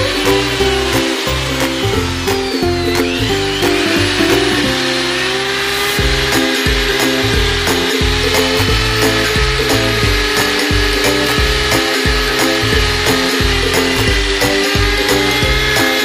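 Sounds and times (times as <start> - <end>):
background music with steady beat: 0.0 - 5.3, 6.0 - 16.0
electric drill spinning polishing wheel: 0.0 - 16.0.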